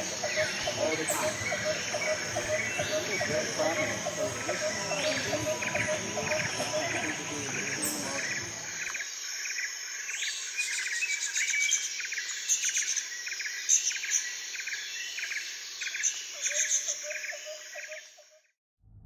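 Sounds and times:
birds chirping: 0:00.0 - 0:09.1
insects droning: 0:00.0 - 0:18.2.

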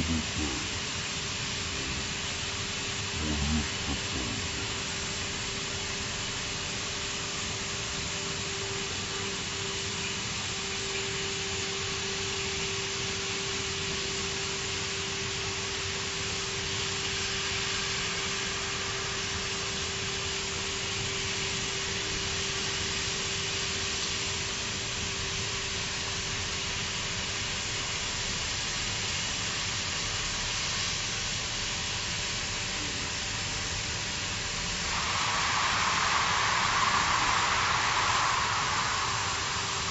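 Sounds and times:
thin humming tone: 0:00.0 - 0:05.4
cutting torch hissing: 0:00.0 - 0:07.5, 0:34.3 - 0:39.9.

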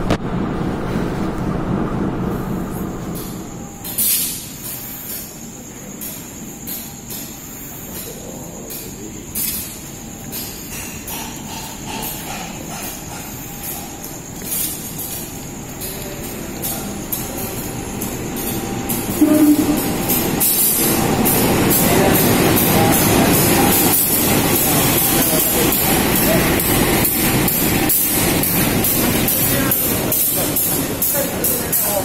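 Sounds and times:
diesel locomotive passing: 0:00.0 - 0:06.4, 0:09.6 - 0:32.0
wheels clacking over rail joints: 0:06.0 - 0:32.0
loud low horn tone: 0:19.1 - 0:20.0.

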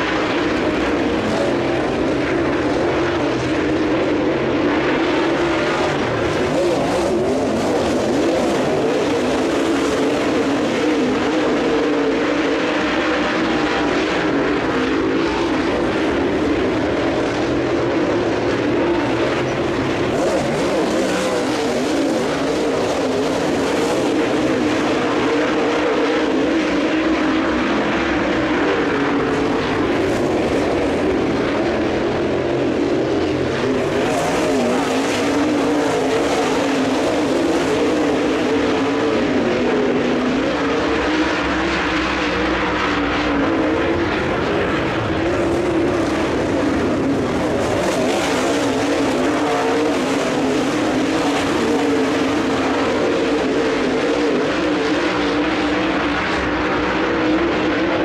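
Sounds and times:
race car engines droning: 0:00.0 - 0:58.0.

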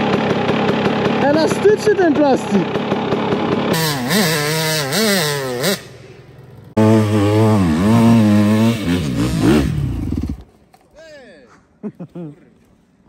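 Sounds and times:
dirt bike engine revving: 0:00.0 - 0:10.5.

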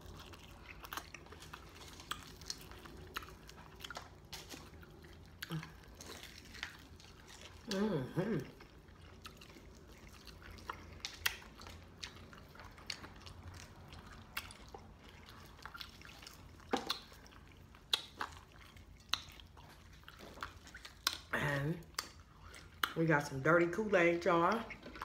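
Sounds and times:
mouth smacks while chewing: 0:08.4 - 0:23.0.

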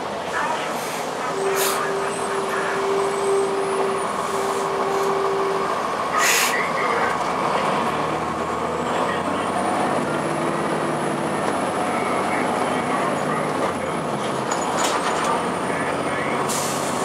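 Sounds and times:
bus diesel engine running: 0:00.0 - 0:17.0
air brake hiss: 0:00.8 - 0:01.9, 0:06.2 - 0:06.6, 0:16.5 - 0:17.0.

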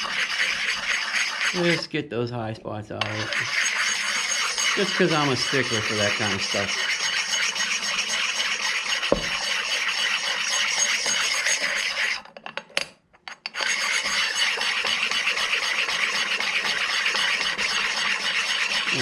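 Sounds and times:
stone scraping metal: 0:00.0 - 0:01.9, 0:03.0 - 0:12.4, 0:13.3 - 0:19.0.

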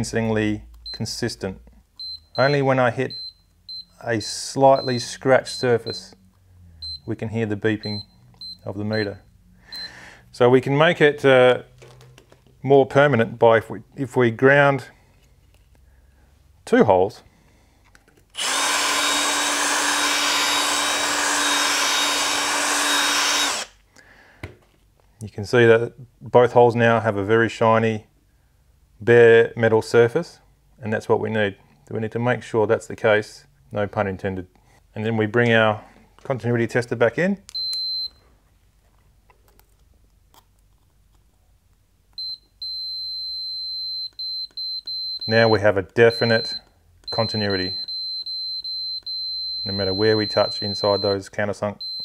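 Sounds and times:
steady unbroken beep: 0:00.8 - 0:01.2, 0:02.0 - 0:10.1, 0:37.5 - 0:38.2, 0:42.2 - 0:52.0
drill grinding metal: 0:18.4 - 0:23.8
short high beep: 0:42.2 - 0:51.2.

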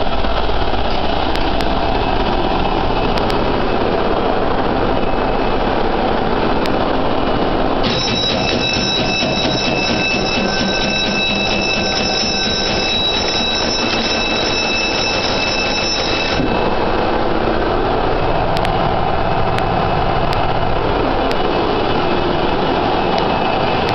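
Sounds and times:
engine room machinery roar: 0:00.0 - 0:23.9
electric alarm bell ringing: 0:07.8 - 0:18.0.

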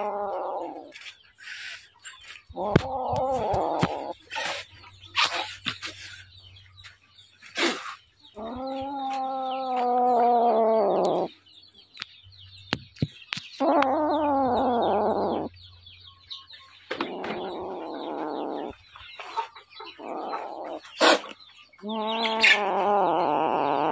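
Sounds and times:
cat yowling: 0:00.0 - 0:00.9, 0:02.6 - 0:04.2, 0:08.4 - 0:11.3, 0:13.6 - 0:15.5, 0:17.1 - 0:18.7, 0:21.9 - 0:23.9.

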